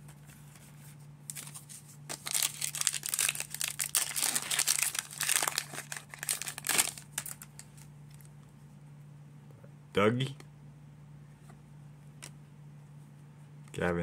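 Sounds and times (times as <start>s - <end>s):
plastic wrapper crinkling: 1.3s - 8.3s.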